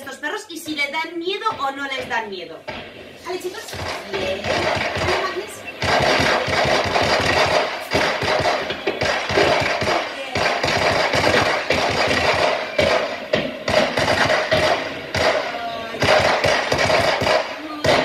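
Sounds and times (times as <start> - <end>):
firecrackers cracking and banging: 0.7 - 18.0.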